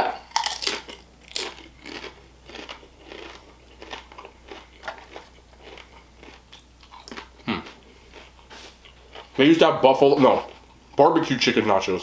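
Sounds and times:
chewing crunchy chips: 0.1s - 11.0s.

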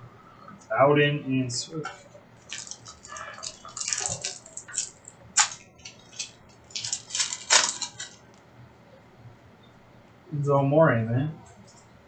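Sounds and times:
trading cards rustling and clicking: 1.9s - 8.2s.

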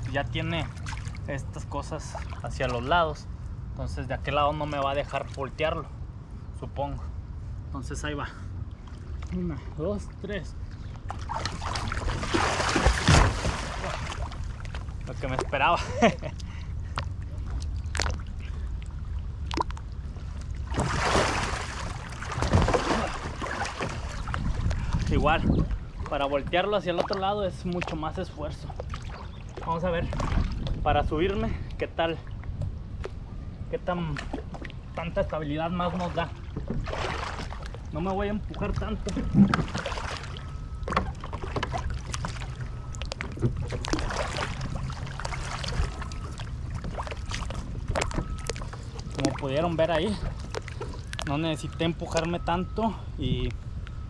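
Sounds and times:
water splashing and sloshing: 0.0s - 6.4s, 8.4s - 52.8s.

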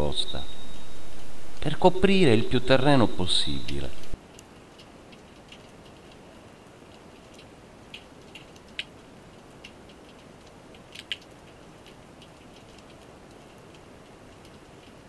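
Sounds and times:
sharp clicks and crackles: 3.5s - 6.2s, 6.8s - 15.0s.

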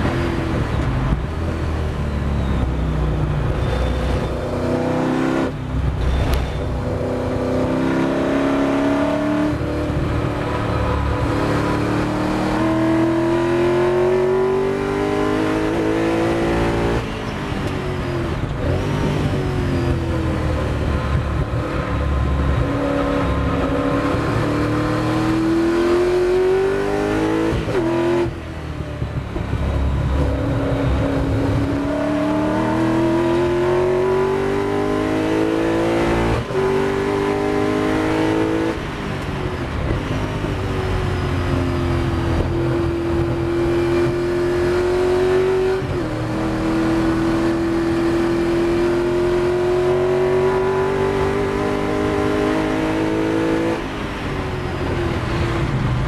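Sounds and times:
racing car engine accelerating: 6.2s - 17.1s, 18.3s - 28.4s, 29.2s - 40.7s, 41.3s - 56.0s.

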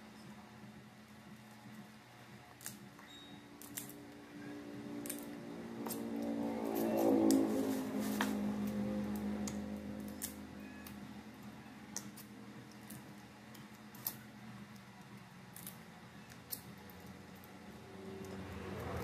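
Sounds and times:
crab shells cracking: 15.5s - 17.0s.

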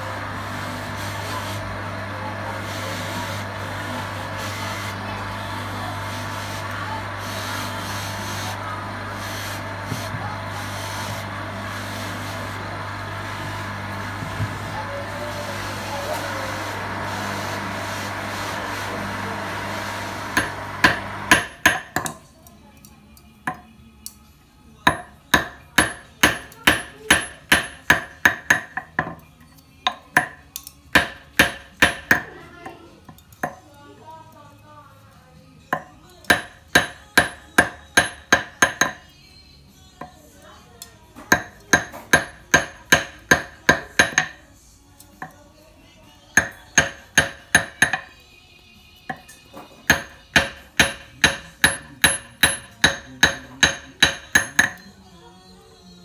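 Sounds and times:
bench motor humming: 0.0s - 21.7s.

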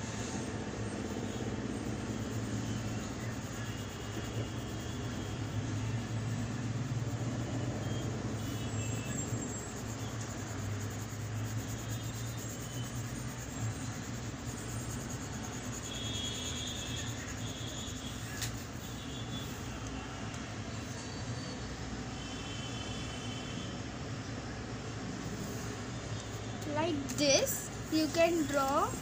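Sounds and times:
steady low hum: 0.0s - 18.3s.

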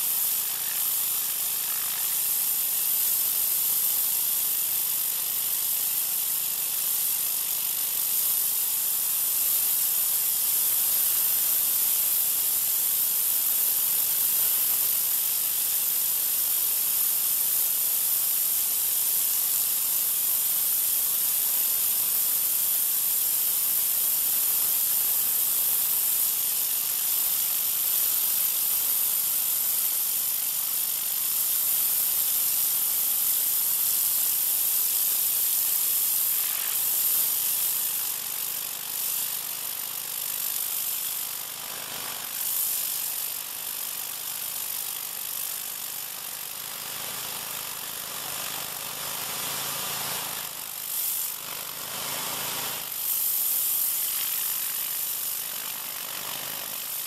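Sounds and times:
pressure washer water spray hiss: 0.0s - 46.2s, 49.0s - 57.0s.

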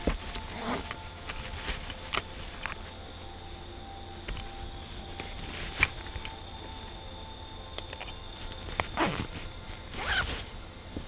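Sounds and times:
high insect trill: 0.0s - 11.0s
zipper pulled shut: 0.5s - 1.0s, 8.8s - 10.5s.

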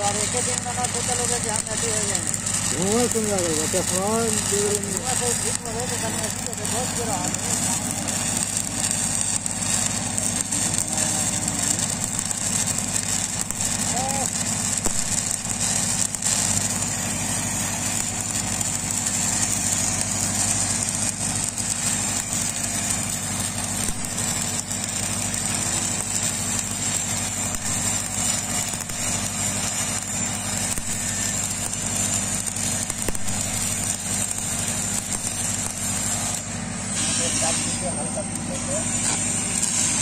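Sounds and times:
welding arc hissing and crackling: 0.0s - 40.0s.

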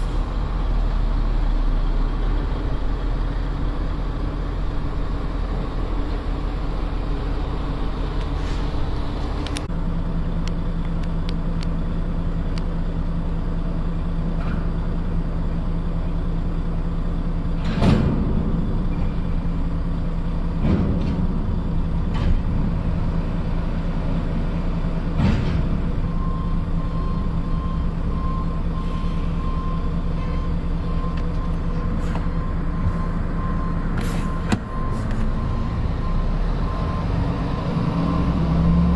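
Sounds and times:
heavy diesel engines running: 0.0s - 38.9s
rapid warning beeper: 26.1s - 38.3s.

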